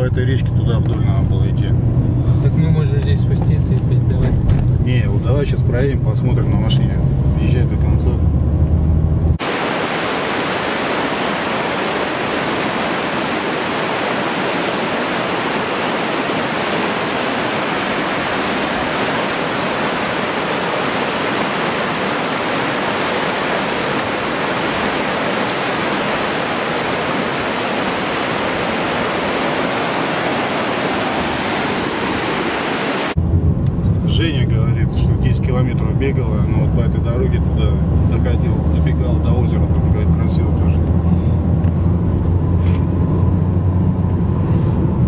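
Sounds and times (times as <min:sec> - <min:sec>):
river rapids rushing: 0:09.4 - 0:33.2.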